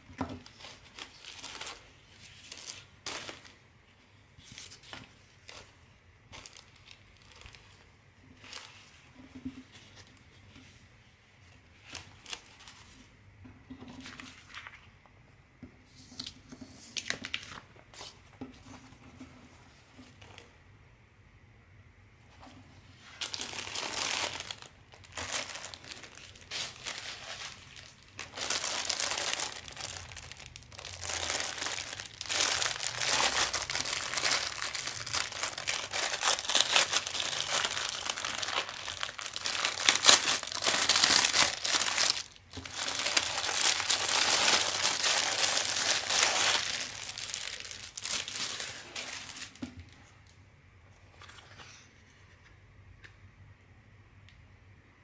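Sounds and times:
plastic bag crinkling: 0:06.4 - 0:08.7, 0:23.2 - 0:49.6.

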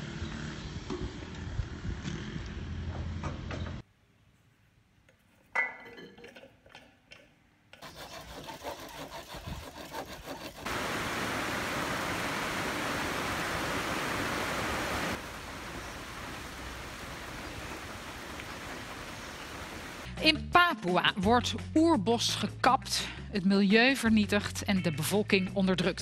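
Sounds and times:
hand saw cutting bamboo: 0:07.7 - 0:10.7
steady hiss: 0:10.7 - 0:20.1.

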